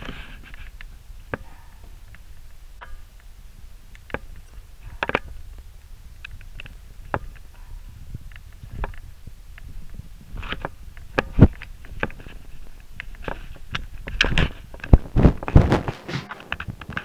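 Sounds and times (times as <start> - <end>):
footsteps on carpeted stairs: 15.6 - 16.8
sharp knock: 15.8 - 16.5.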